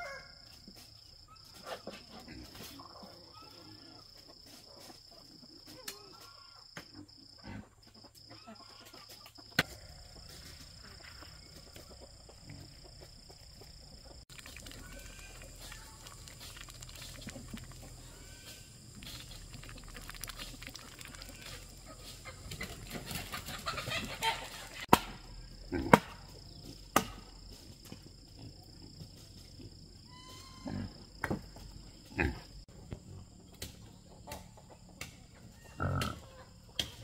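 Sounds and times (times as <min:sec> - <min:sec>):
chickens clucking: 0:01.4 - 0:24.9, 0:33.0 - 0:37.0.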